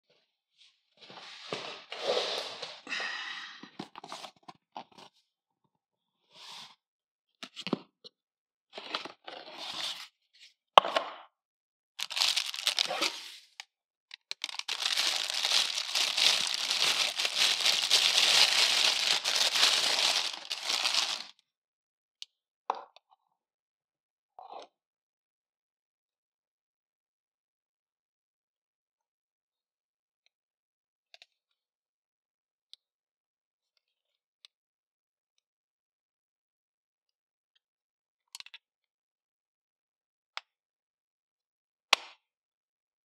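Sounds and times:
plastic bag crinkling: 12.0 - 13.2, 14.4 - 21.3
plastic packaging rustling: 12.0 - 13.3, 14.4 - 21.3.

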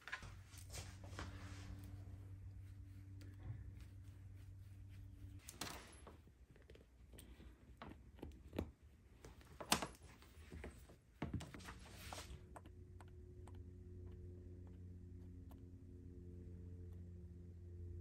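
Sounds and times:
plastic cable clicks and rustles: 6.5 - 11.7.

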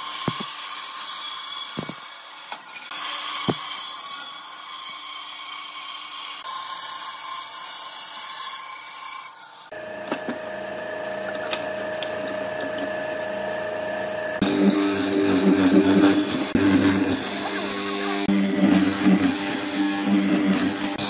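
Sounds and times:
band saw cutting wood: 0.0 - 21.0
chisel biting into wood: 0.2 - 0.5, 1.8 - 2.0, 3.4 - 3.7
mortiser motor running: 0.2 - 0.5, 9.7 - 21.0.

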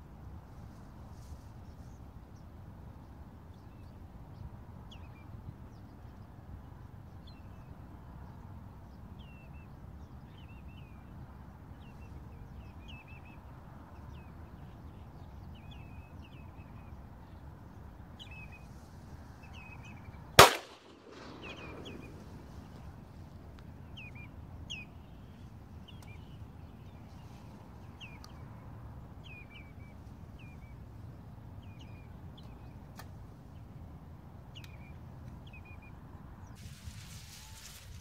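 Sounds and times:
bird calls: 19.4 - 23.1
shotgun shot with echo: 20.4 - 22.5.

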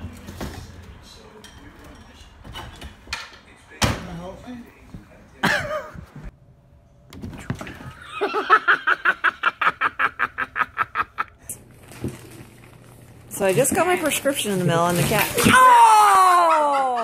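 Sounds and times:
person laughing hard: 8.0 - 11.4, 16.1 - 17.0.

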